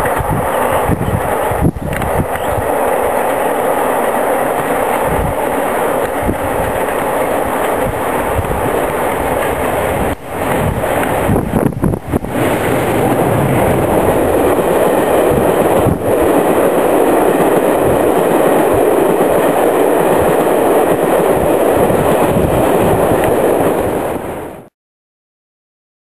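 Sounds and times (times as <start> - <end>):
train wheels roaring on rails: 0.0 - 24.7.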